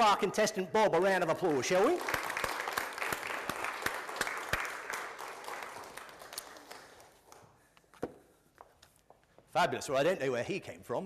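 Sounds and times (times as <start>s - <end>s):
congregation applauding: 1.4s - 7.5s.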